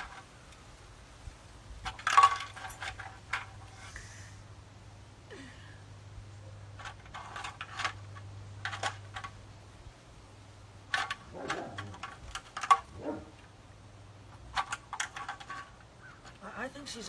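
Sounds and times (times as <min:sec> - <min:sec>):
low steady hum: 0:00.0 - 0:17.0
small hard objects clicking: 0:10.8 - 0:13.5, 0:14.3 - 0:16.4.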